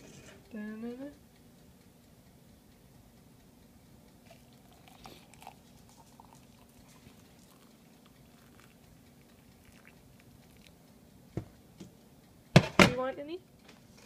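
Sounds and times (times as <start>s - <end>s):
water poured into a mug: 4.3s - 10.7s.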